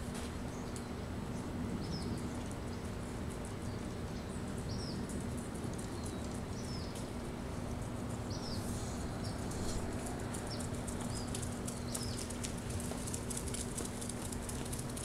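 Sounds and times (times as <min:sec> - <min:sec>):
bird chirping: 0:08.2 - 0:09.5.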